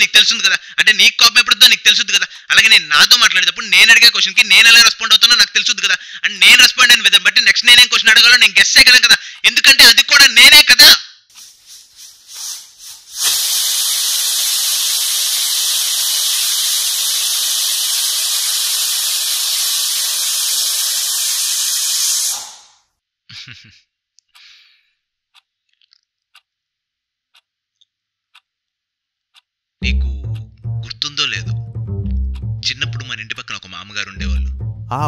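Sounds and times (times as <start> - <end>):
loud static hiss: 11.3 - 22.5.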